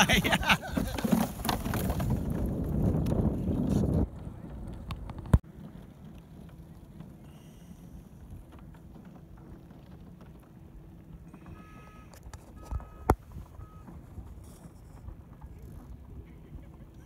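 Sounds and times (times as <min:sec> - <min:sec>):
wind on microphone: 0:00.0 - 0:05.7.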